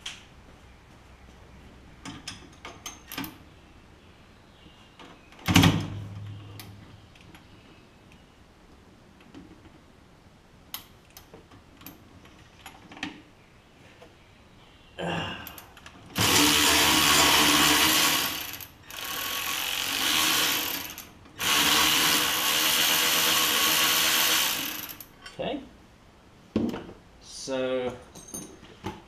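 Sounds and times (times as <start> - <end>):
power ratchet motor running: 16.2 - 25.1
tools tapping on metal: 28.1 - 28.6.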